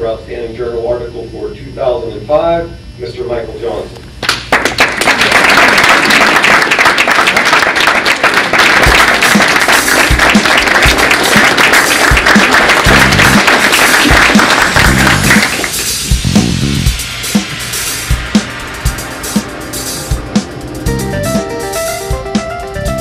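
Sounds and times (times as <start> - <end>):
audience applauding: 4.2 - 16.0
background music: 8.8 - 23.0
low drum beats: 8.8 - 23.0.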